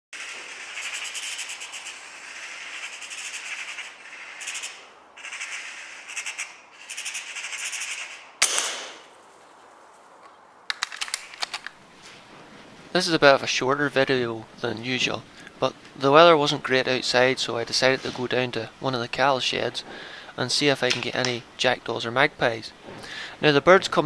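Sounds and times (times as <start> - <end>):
sharp gunshot: 8.4 - 9.1.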